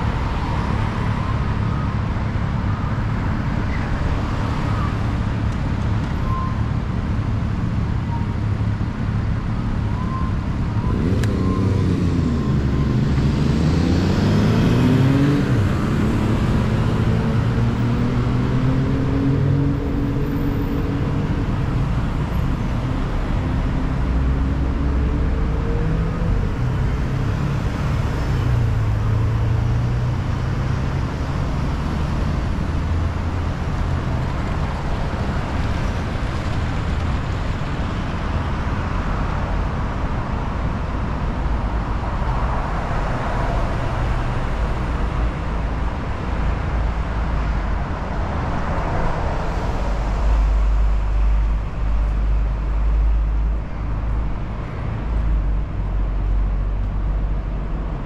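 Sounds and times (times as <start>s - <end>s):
vehicles passing: 0.0s - 58.0s.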